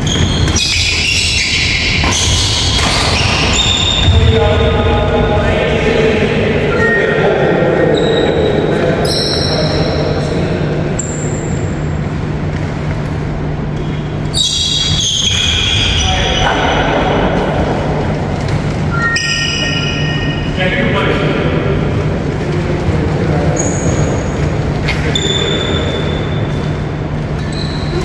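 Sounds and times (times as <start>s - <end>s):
shoes squeaking on wooden court: 0.0s - 4.1s, 12.3s - 17.2s, 18.1s - 20.6s, 23.4s - 28.0s
steady low hum: 0.0s - 28.0s.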